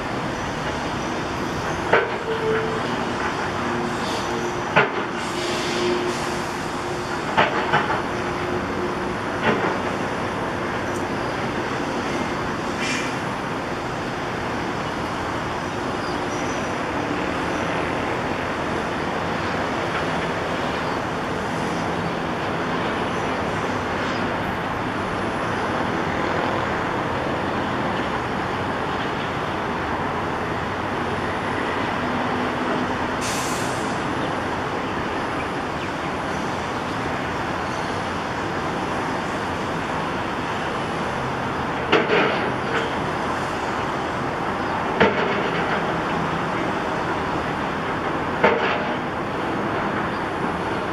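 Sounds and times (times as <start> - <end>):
short high hiss: 12.8 - 13.2, 33.2 - 34.0.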